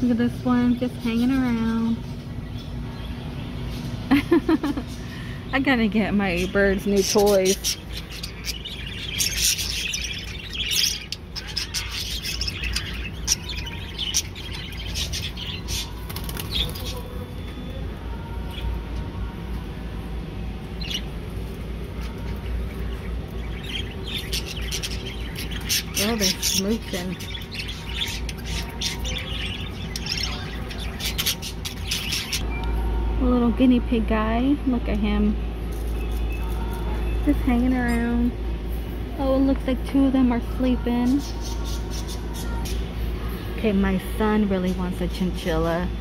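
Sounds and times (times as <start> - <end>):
budgerigars chirping: 6.2 - 17.1, 22.2 - 32.4.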